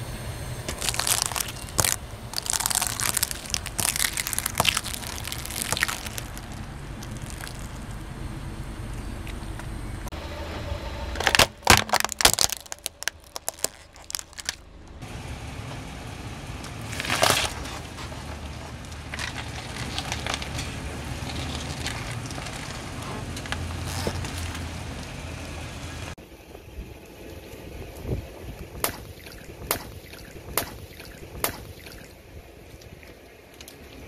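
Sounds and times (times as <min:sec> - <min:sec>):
car hum: 0:00.0 - 0:34.0
tire crushing brittle objects: 0:00.6 - 0:08.1, 0:11.2 - 0:15.0, 0:16.5 - 0:26.1.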